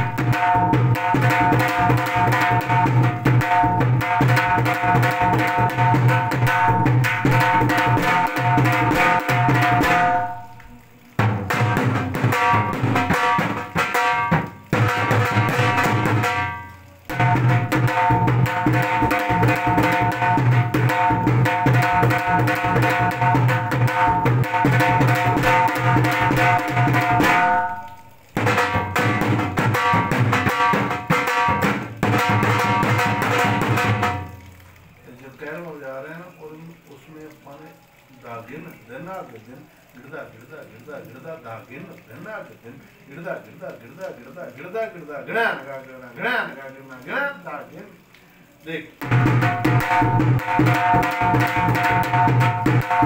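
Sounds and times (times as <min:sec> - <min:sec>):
drums played with sticks: 0:00.0 - 0:34.5, 0:49.0 - 0:53.0.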